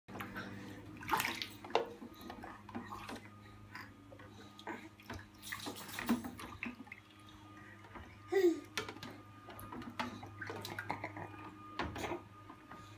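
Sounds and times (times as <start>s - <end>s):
water splashing in a steel sink: 0.1s - 3.4s, 4.6s - 7.9s, 8.7s - 12.2s.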